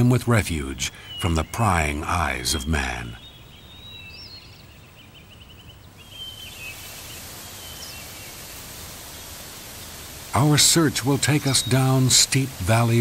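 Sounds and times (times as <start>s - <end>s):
birds chirping: 0.0s - 13.0s
waterfall rushing: 6.5s - 13.0s.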